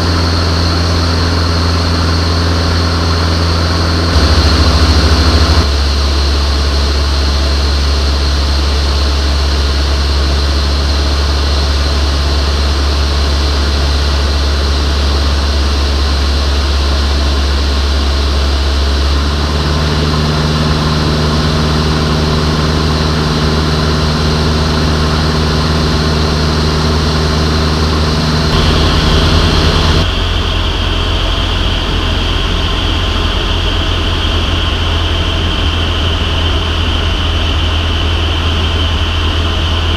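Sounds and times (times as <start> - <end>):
aircraft engine and propeller droning: 0.0 - 39.9.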